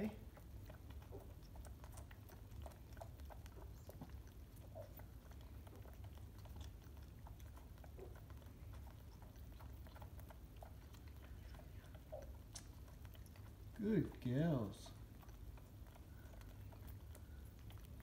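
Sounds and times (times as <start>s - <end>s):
low steady hum: 0.0s - 18.0s
soft sucking clicks: 0.4s - 13.8s.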